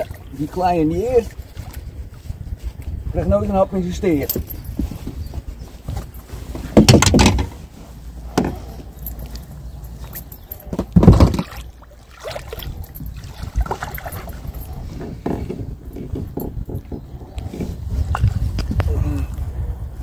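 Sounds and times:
water noise: 0.0 - 3.2, 6.7 - 19.5
fish splashing: 11.4 - 14.2.

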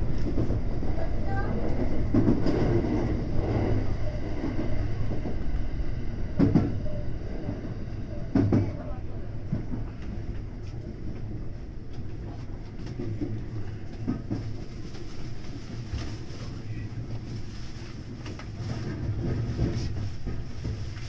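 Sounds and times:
electric train humming: 0.0 - 14.7.

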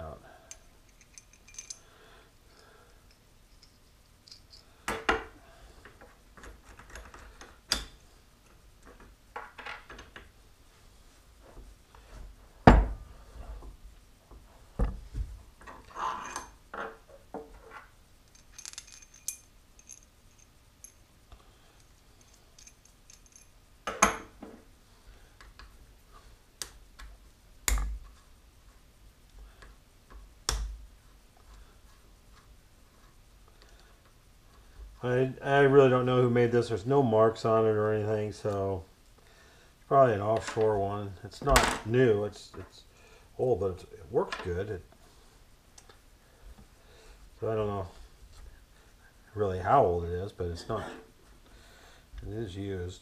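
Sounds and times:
metal bolts being handled: 0.5 - 1.8, 3.0 - 4.8, 15.8 - 21.1, 21.8 - 24.3
metallic clinks and knocks: 0.5 - 1.9, 2.5 - 5.2, 15.6 - 21.1, 21.8 - 24.4.

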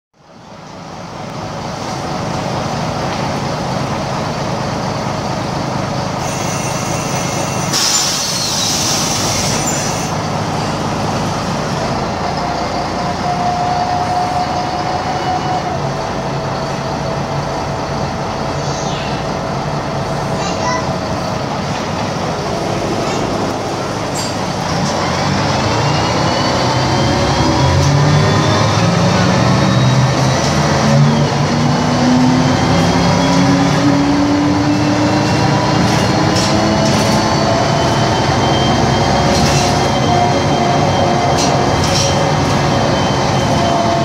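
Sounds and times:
bus diesel engine running: 0.2 - 44.0
compressed air hiss: 7.7 - 10.1.

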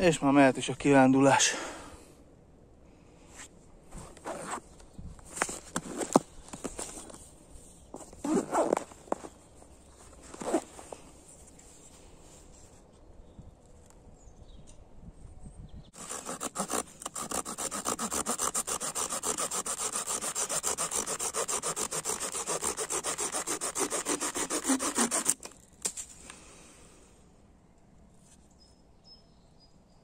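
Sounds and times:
saw cutting through branch: 16.0 - 25.7.

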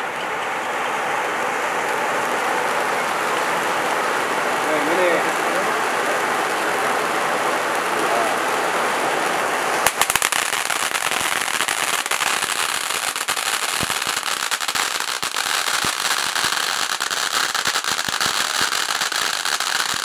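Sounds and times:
firework fountain hissing: 0.0 - 20.0
crackling pops: 9.7 - 20.0.

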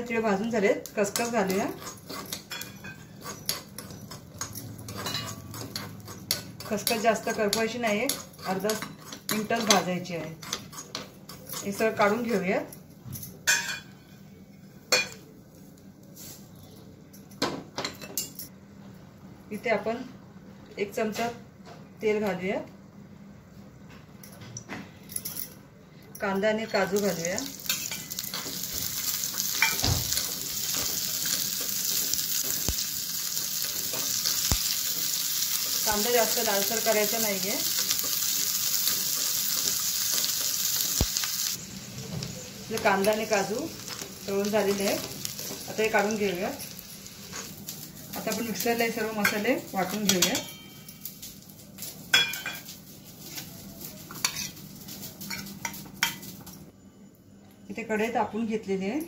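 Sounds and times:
metal bowl and jar clinking: 26.2 - 32.7
onions sizzling in oil: 26.8 - 56.4.

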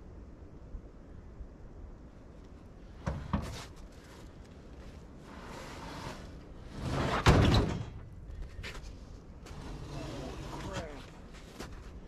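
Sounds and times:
sheet metal scraping: 5.2 - 8.0, 9.4 - 11.0.

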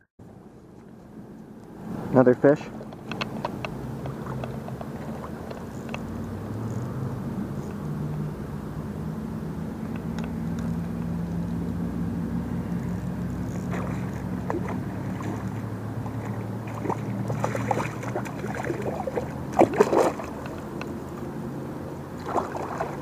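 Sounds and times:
low hum: 0.0 - 23.0
sharp clicks: 2.8 - 6.9
fish splashing at water surface: 13.4 - 21.3, 22.1 - 23.0.

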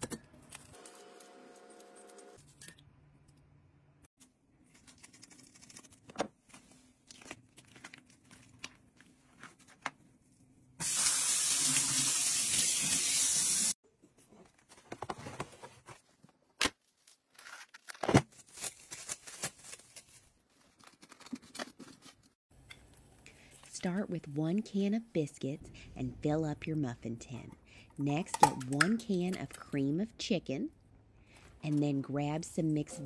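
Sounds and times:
cling wrap crinkling: 16.8 - 21.5.

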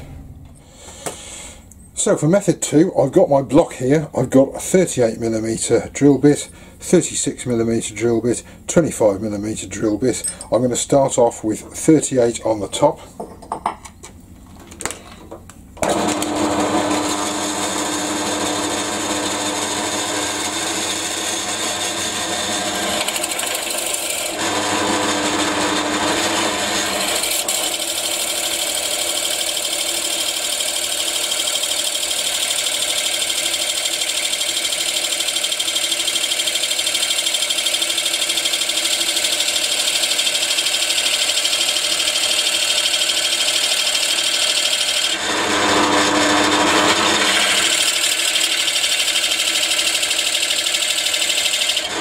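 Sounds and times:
drill bit boring into wood: 15.8 - 52.0
drill motor running: 15.8 - 52.0.

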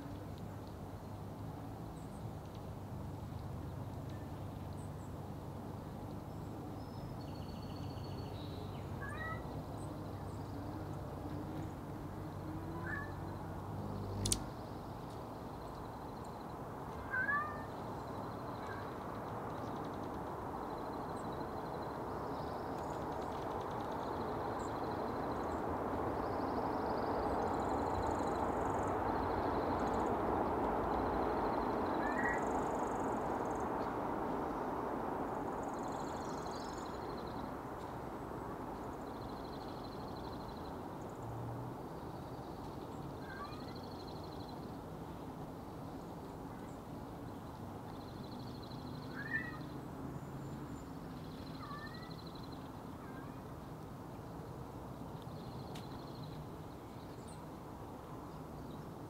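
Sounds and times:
sharp click: 14.2 - 14.5
cat meowing: 17.0 - 17.7.

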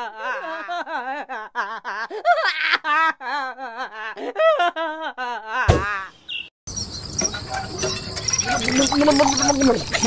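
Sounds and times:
insects chirping: 6.2 - 10.0.

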